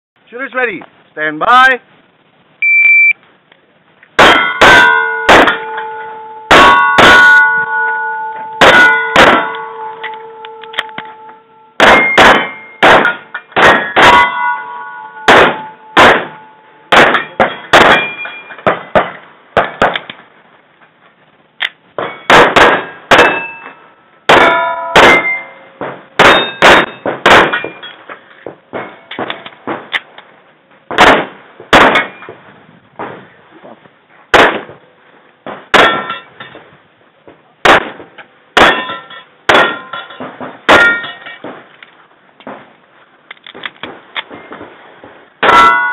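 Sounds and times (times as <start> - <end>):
shot timer beep: 2.6 - 3.2
pistol shots: 4.2 - 5.7, 8.6 - 9.7, 11.8 - 14.4, 15.2 - 20.1, 22.3 - 23.5, 24.3 - 27.8, 30.9 - 32.2, 34.3 - 34.8, 37.6 - 39.8
steel targets clanging: 4.2 - 19.9, 22.0 - 29.9, 31.1 - 32.3, 35.5 - 36.6, 37.7 - 41.7, 45.4 - 45.9.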